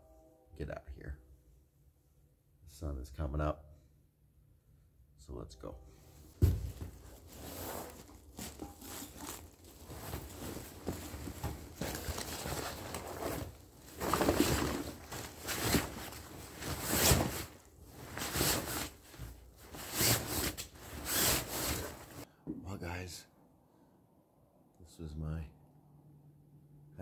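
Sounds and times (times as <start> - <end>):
nylon sleeping bag rustling: 6.2 - 22.3.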